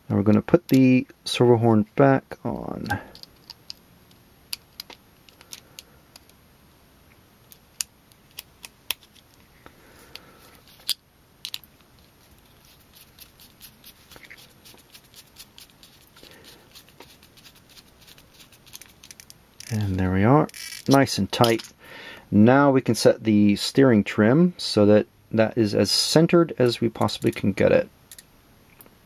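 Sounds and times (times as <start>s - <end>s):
screwdriver turning small screw: 16.7s - 19.8s.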